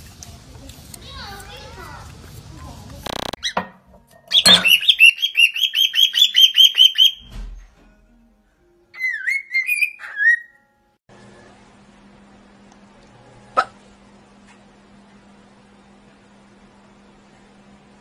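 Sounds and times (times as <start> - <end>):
cockatiel chirps: 4.3 - 7.3, 9.0 - 10.6
cockatiel whistling: 4.3 - 7.3, 9.0 - 10.6.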